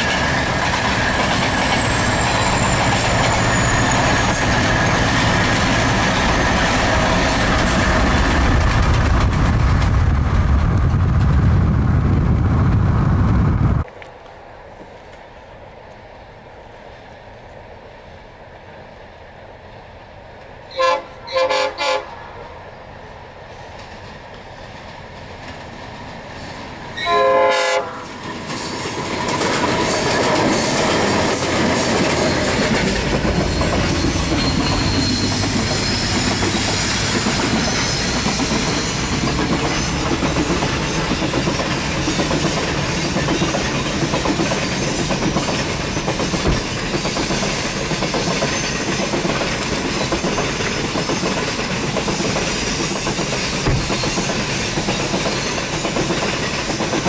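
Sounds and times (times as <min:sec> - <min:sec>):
train rumbling past: 0:00.0 - 0:57.0
train horn: 0:20.7 - 0:22.5, 0:27.0 - 0:28.1.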